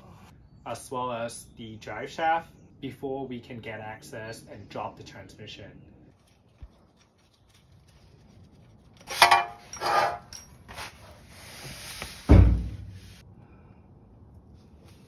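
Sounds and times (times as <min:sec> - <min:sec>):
metal tools clinking: 0:09.0 - 0:11.0
heavy thud: 0:12.3 - 0:13.0.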